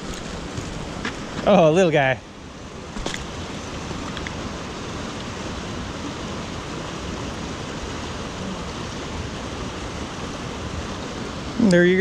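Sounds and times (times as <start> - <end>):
river rushing through rapids: 0.0 - 12.0.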